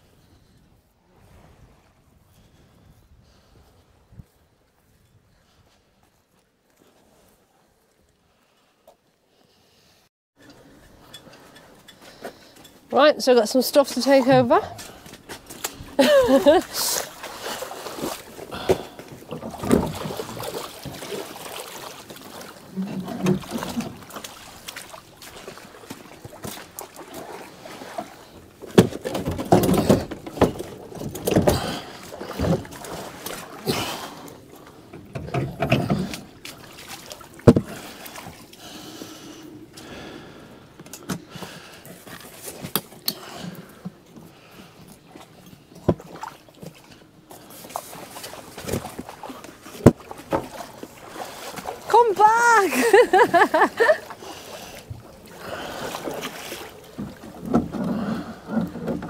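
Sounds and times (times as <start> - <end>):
splashing in shallow water: 13.8 - 59.0
knocks and bumps of gear: 28.7 - 32.8, 34.9 - 36.3.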